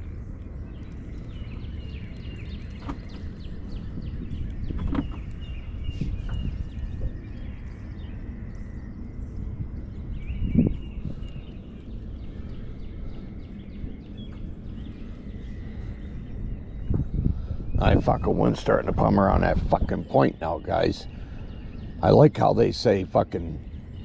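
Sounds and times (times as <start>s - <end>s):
birds chirping faintly: 0.0s - 24.0s
wind rumbling on microphone: 0.0s - 24.0s.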